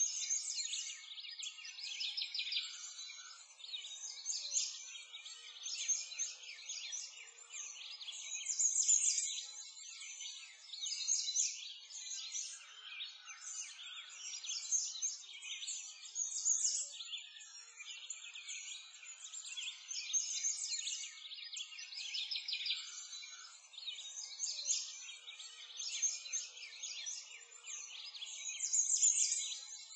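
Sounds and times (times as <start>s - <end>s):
songbirds chirping and trilling: 0.0s - 29.9s.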